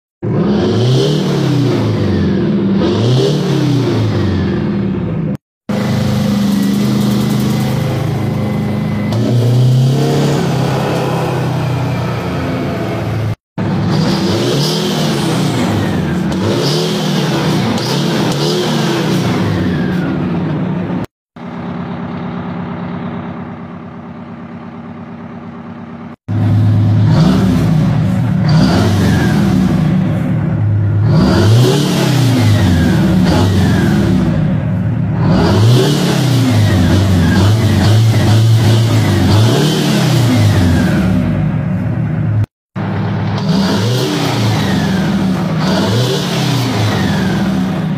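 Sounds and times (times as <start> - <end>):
diesel truck engine revving: 0.2 - 25.2, 25.9 - 47.9
high whine: 4.2 - 14.4.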